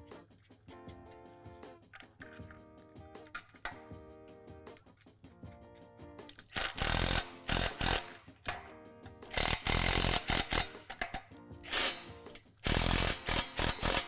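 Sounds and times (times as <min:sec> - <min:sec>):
background music: 0:00.0 - 0:14.0
cordless drill driving bolts: 0:06.5 - 0:08.1, 0:09.3 - 0:10.8, 0:12.6 - 0:14.0.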